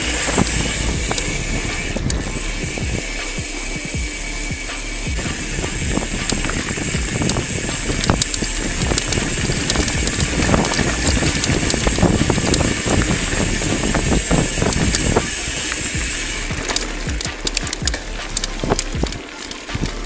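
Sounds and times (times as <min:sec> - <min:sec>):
bike clicking and rattling: 0:00.0 - 0:20.0
bike tyres crunching on gravel: 0:00.0 - 0:20.0
wind noise: 0:00.0 - 0:20.0.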